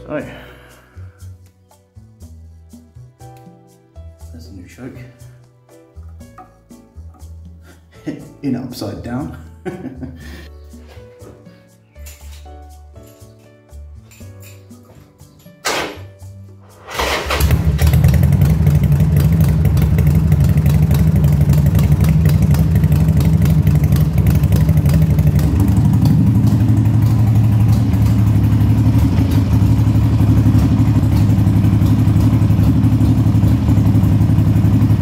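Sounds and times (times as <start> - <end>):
motorcycle engine running: 16.8 - 35.0.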